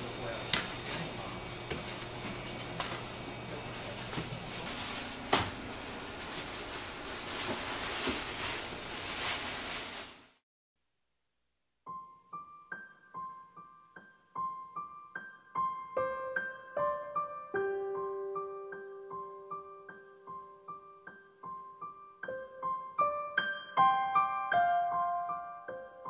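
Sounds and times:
gentle piano melody: 0:11.9 - 0:26.0.

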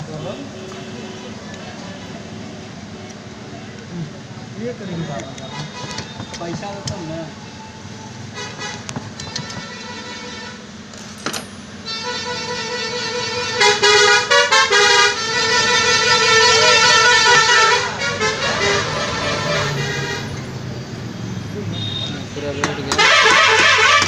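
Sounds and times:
multi-tone vehicle horn: 0:00.1 - 0:01.6, 0:05.1 - 0:06.4, 0:07.5 - 0:10.8, 0:11.8 - 0:20.6, 0:21.6 - 0:24.0.

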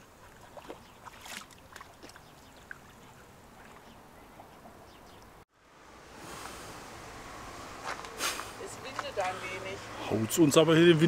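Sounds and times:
water lapping against stones: 0:00.0 - 0:04.0.

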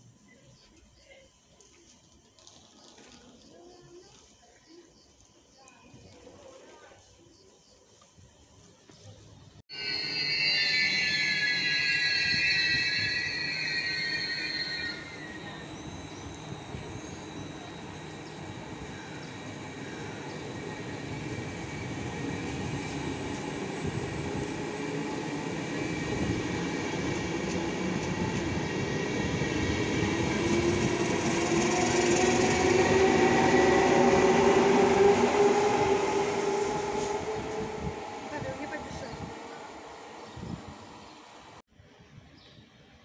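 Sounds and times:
train wheels rumbling on rails: 0:08.4 - 0:41.6
locomotive whine: 0:09.7 - 0:41.6.

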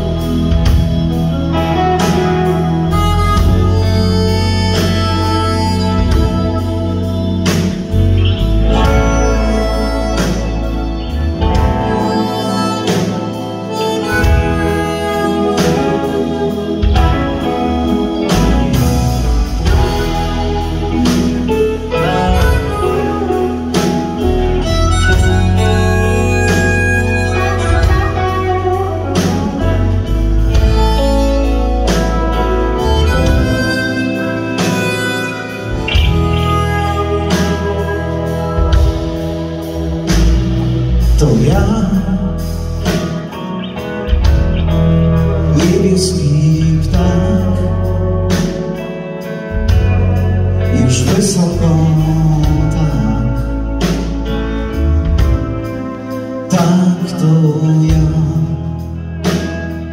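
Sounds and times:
harmonica: 0:00.0 - 0:45.7
bass guitar: 0:00.0 - 0:59.9
drum kit beat: 0:00.0 - 0:59.9
electric guitars: 0:00.0 - 0:59.9.

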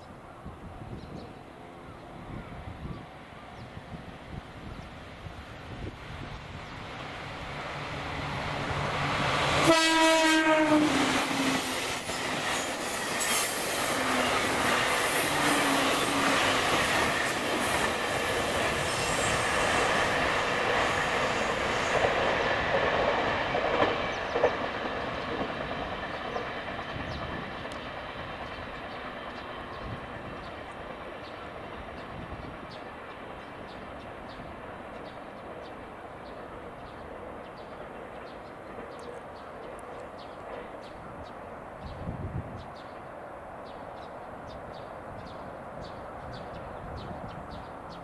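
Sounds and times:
train wheels rumbling on rail: 0:00.7 - 0:48.0
train horn blast: 0:09.6 - 0:11.5.

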